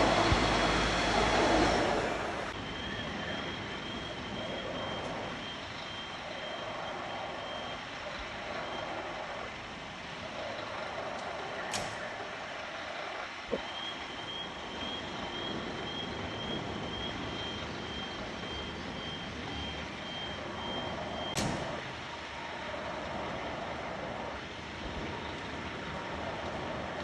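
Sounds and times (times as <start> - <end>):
diesel engine idling: 0.0 - 9.2
reversing alarm beeping: 2.6 - 9.0, 13.5 - 21.4.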